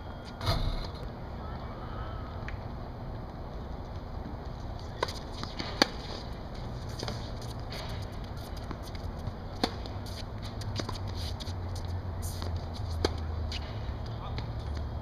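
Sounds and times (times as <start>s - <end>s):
racket hitting tennis ball: 4.9s - 14.5s.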